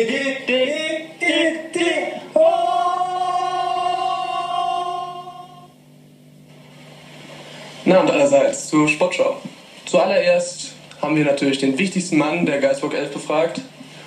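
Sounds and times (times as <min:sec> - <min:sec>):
men singing a cappella jingle: 0:00.0 - 0:05.7.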